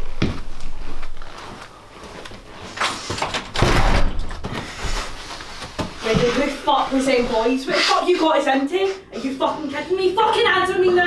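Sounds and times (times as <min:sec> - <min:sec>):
front door shutting: 0:02.9 - 0:04.7
heavy thud: 0:03.6 - 0:04.6.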